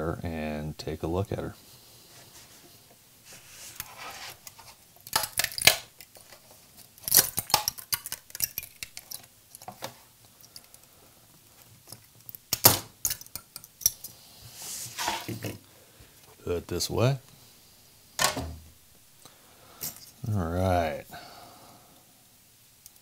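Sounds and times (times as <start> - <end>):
sharp clicks and metallic pops: 6.9 - 10.9, 11.5 - 14.1.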